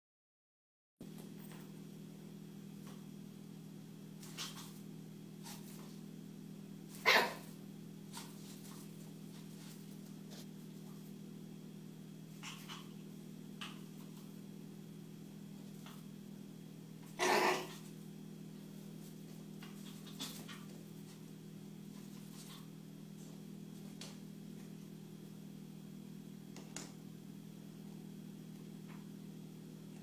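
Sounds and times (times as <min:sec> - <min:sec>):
steady low hum: 0:01.0 - 0:30.0
dog barking: 0:07.0 - 0:07.6.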